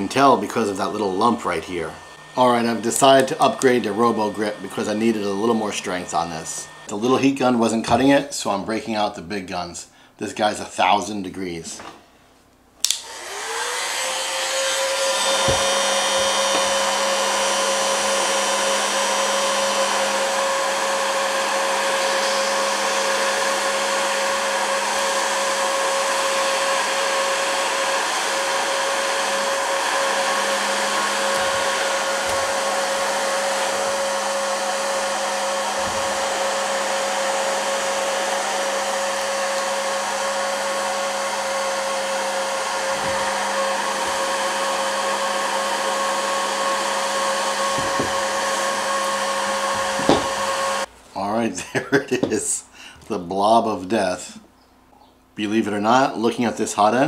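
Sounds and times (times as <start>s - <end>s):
motor hum: 0.0s - 6.9s, 13.0s - 50.9s
heat gun airflow rush: 0.0s - 9.1s, 12.8s - 50.9s.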